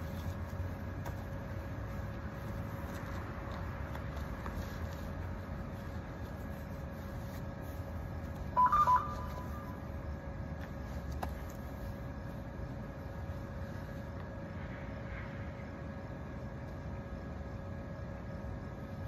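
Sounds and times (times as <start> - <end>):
faint constant hum: 0.0 - 19.0
steady low rumble: 0.0 - 19.0
short electronic beeps: 8.6 - 9.8.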